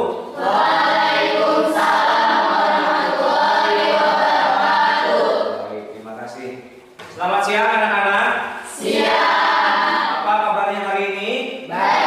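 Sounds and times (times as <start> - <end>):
choir singing: 0.0 - 5.7, 8.7 - 10.3, 11.7 - 12.0.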